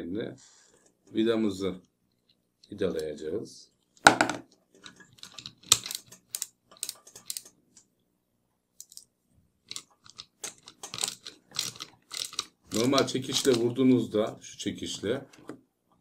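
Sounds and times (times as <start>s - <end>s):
metal clicks and scrapes of screw: 4.8s - 7.6s, 8.8s - 9.1s, 9.7s - 13.6s.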